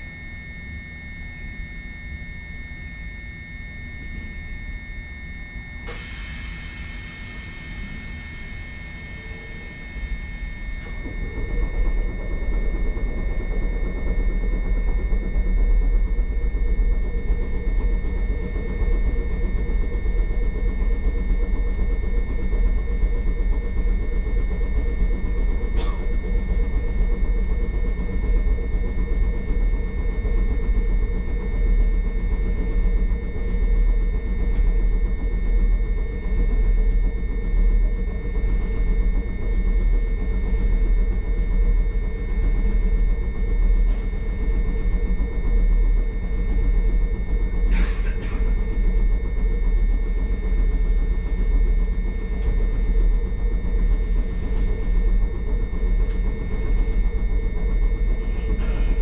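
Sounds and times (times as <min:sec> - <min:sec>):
constant hum: 0:00.0 - 0:59.0.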